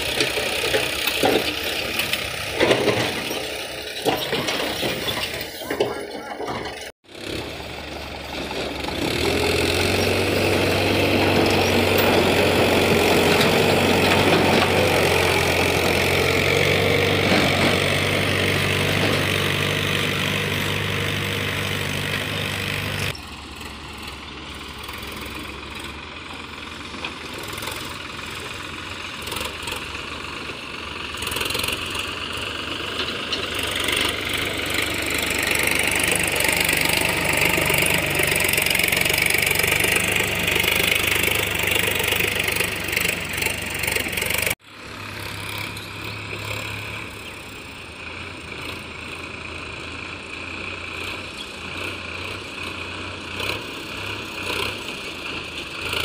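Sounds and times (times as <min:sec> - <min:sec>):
diesel tractor engines: 0:00.0 - 0:56.0.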